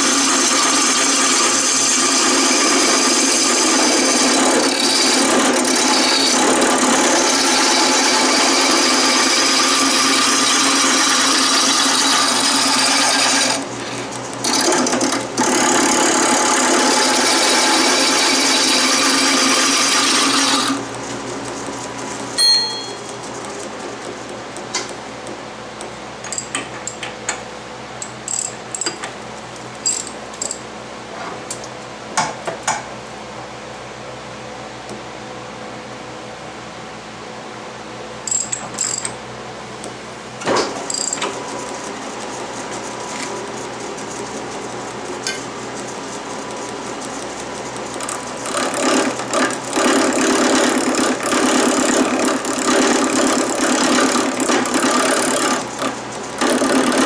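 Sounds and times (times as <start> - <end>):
wood lathe running: 0.0 - 22.4, 40.9 - 57.0
lathe tool cutting wood hiss: 7.2 - 14.1, 15.6 - 20.8.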